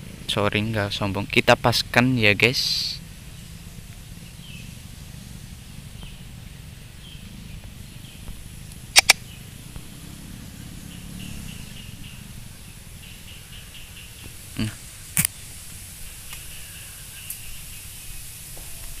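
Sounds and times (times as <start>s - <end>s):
low background hum and hiss: 0.0s - 19.0s
faint short chirps: 9.0s - 9.2s
sharp double click: 9.0s - 9.2s.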